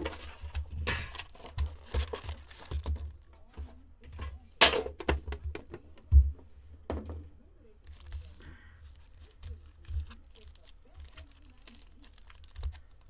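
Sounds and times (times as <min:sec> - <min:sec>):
foil card packs crinkling: 0:00.0 - 0:03.3, 0:07.8 - 0:13.0.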